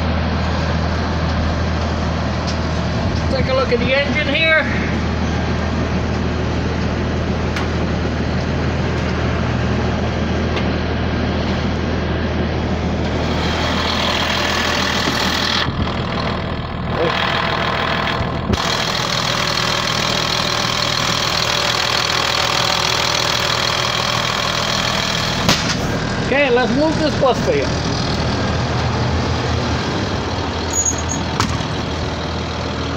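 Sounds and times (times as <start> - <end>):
diesel engine idling: 0.0 - 32.9
engine whir and hiss: 0.0 - 32.9.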